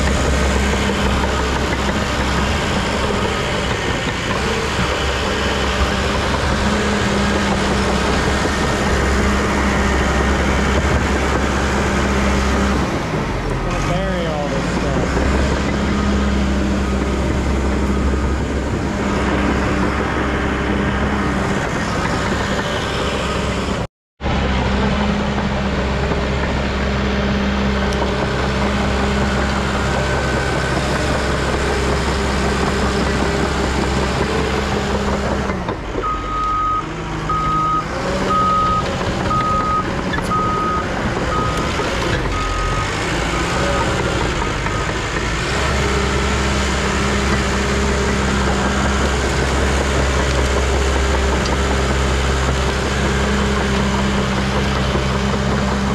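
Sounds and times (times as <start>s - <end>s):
dozer diesel engine running: 0.0s - 55.9s
excavator working: 0.0s - 55.9s.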